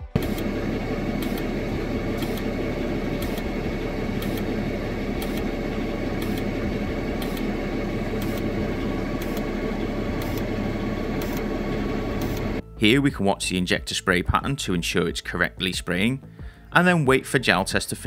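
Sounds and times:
diesel engine idling: 0.0s - 12.6s.

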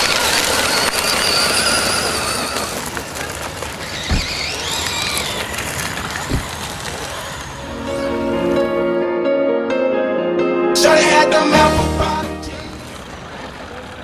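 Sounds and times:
tyres spinning on gravel: 0.0s - 8.1s, 12.5s - 14.0s
electric motor whining: 0.0s - 8.5s.

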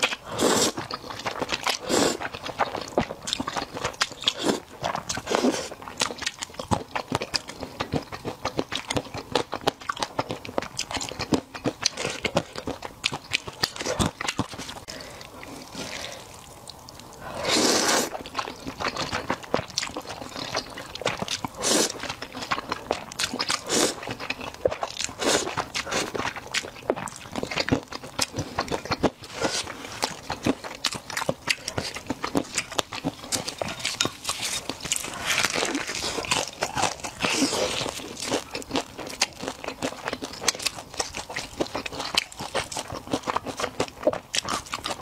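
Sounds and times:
slurping noodles: 0.0s - 0.9s, 1.7s - 2.4s, 4.3s - 5.8s, 17.2s - 18.2s, 21.6s - 22.1s, 23.3s - 24.2s, 25.1s - 26.4s
wet chewing: 0.0s - 45.0s.

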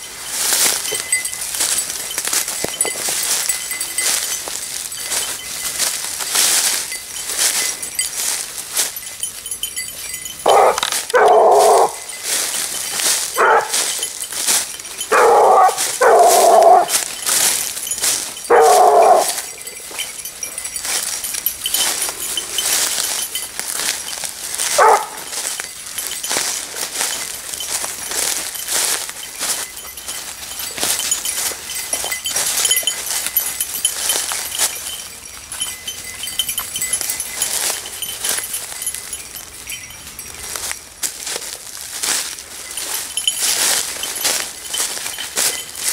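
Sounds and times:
twigs and undergrowth crackling: 0.0s - 45.9s
hounds baying: 0.5s - 40.7s.

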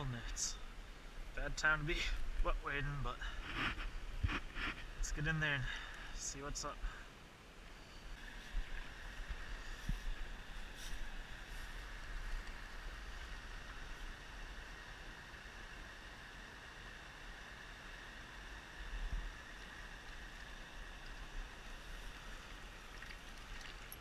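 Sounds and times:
wind rumble on microphone: 3.2s - 5.3s, 8.2s - 14.5s, 18.9s - 22.3s
creek running over riffle: 7.7s - 24.0s.

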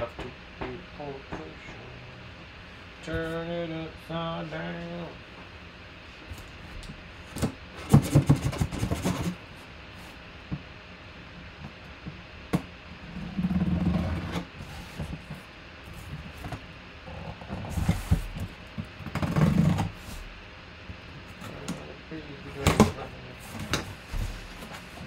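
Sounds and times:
scraping on cardboard: 7.4s - 9.4s, 13.1s - 16.6s, 17.2s - 20.3s, 22.8s - 25.0s
box cutter cutting cardboard: 7.8s - 9.4s.

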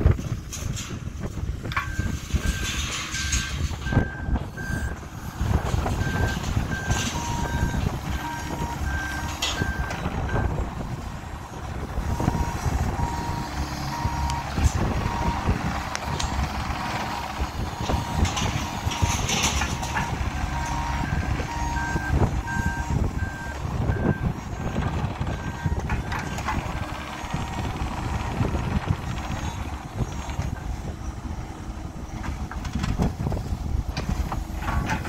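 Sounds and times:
excavator diesel engine running: 0.0s - 35.0s
high-pitched beeping alarm: 1.8s - 5.4s, 12.2s - 14.5s, 16.8s - 28.7s
travel alarm beeping: 12.2s - 14.5s, 20.5s - 24.3s.

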